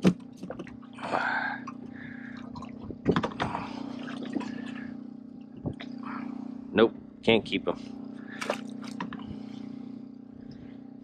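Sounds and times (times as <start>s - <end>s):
steady low hum: 0.0s - 11.0s
water splash: 8.4s - 9.0s.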